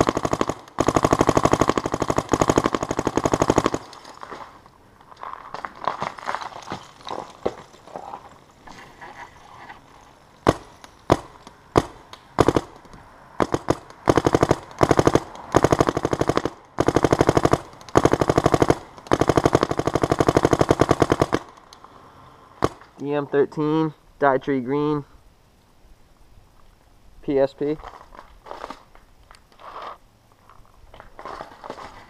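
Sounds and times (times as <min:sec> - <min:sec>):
paintball marker firing: 0:10.4 - 0:21.8.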